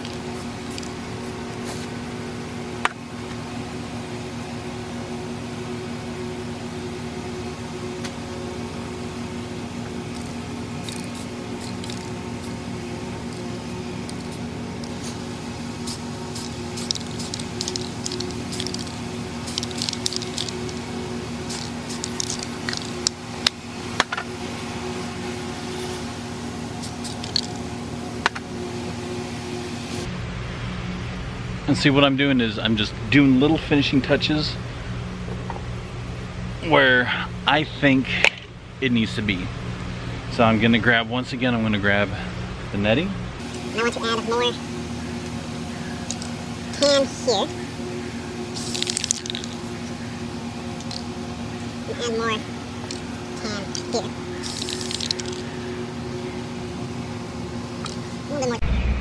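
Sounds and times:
spray paint can hissing: 0.0 - 1.9, 10.1 - 12.6, 13.2 - 23.6, 26.8 - 27.7, 46.0 - 47.3, 48.5 - 49.9, 50.8 - 51.1, 52.8 - 55.4
droning hum: 0.0 - 59.0.

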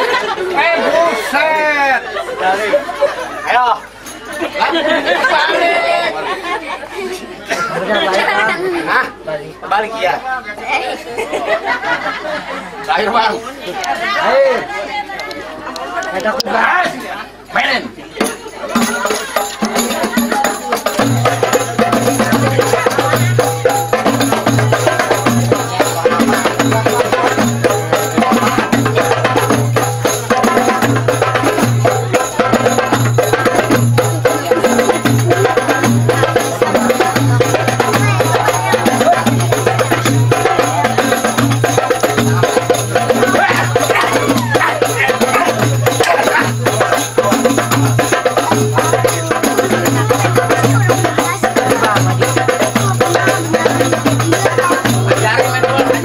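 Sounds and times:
fast dense percussion: 18.2 - 56.0.

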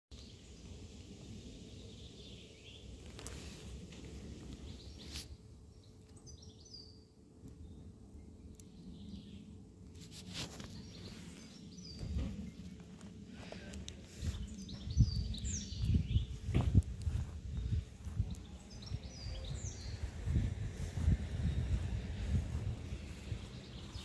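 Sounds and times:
small birds chirping: 0.1 - 24.0
faint clicks: 13.7 - 14.0.

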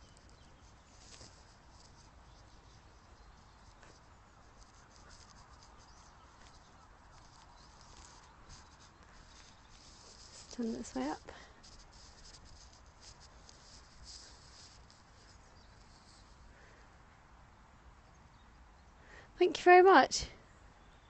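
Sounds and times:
scratching ticks near microphone: 0.0 - 16.4.

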